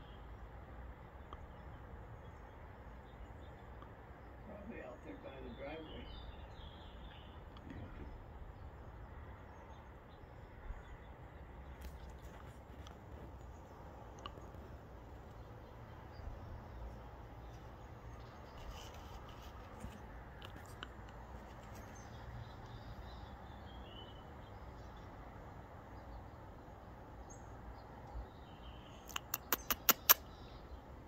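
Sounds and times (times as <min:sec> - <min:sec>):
sharp clicks: 0:29.0 - 0:30.3.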